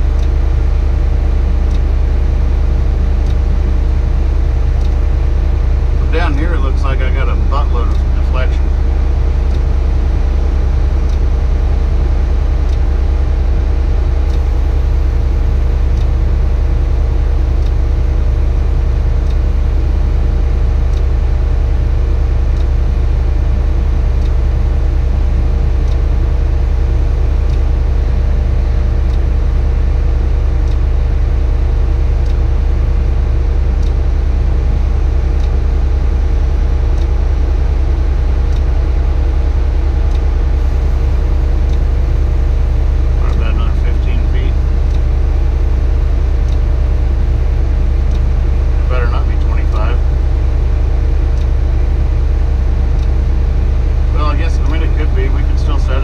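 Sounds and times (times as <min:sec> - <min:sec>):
faint ticks: 0:00.0 - 0:03.6
diesel engine droning: 0:00.0 - 0:56.0.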